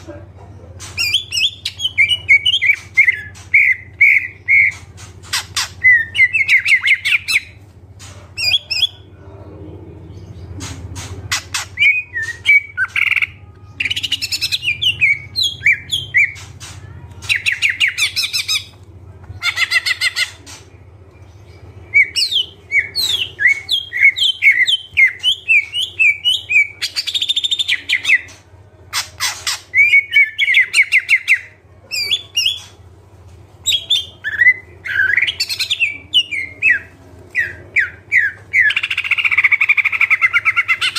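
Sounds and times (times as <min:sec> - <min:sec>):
faint low hum: 0:00.0 - 0:40.9
bird singing chirps and trills: 0:10.2 - 0:18.8, 0:19.4 - 0:32.8.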